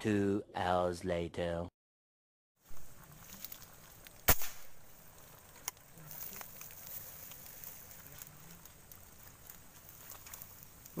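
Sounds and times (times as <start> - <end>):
outdoor background noise: 2.6 - 11.0
air gun firing pop: 4.3 - 4.7.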